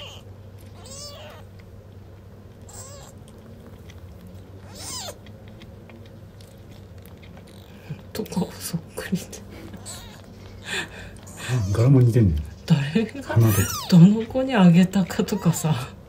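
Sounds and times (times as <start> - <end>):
kitten mewing: 0.0 - 1.5, 2.7 - 3.3, 4.6 - 5.3, 9.6 - 12.0, 13.3 - 14.1.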